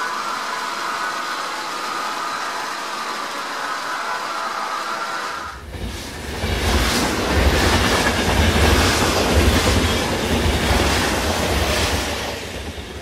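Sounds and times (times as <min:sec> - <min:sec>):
locomotive hiss: 0:00.0 - 0:09.2
electric locomotive rumbling: 0:00.0 - 0:13.0
rail clatter: 0:05.6 - 0:13.0.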